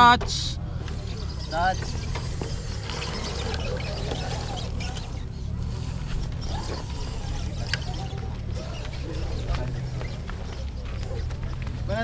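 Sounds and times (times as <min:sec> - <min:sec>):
faint distant voices: 0:00.0 - 0:12.0.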